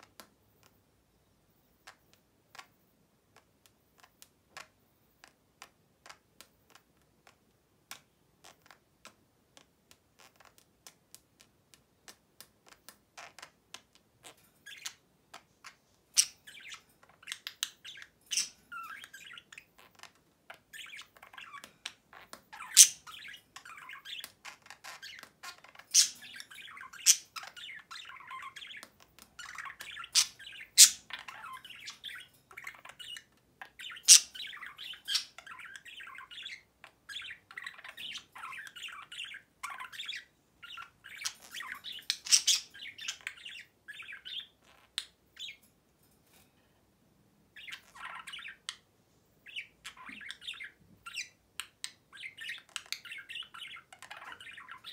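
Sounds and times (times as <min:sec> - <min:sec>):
budgerigar warbling and chattering: 0:15.6 - 0:45.6, 0:49.4 - 0:54.9
budgerigar sharp chirps: 0:22.6 - 0:24.3, 0:25.9 - 0:28.8, 0:29.4 - 0:33.2, 0:33.8 - 0:44.6.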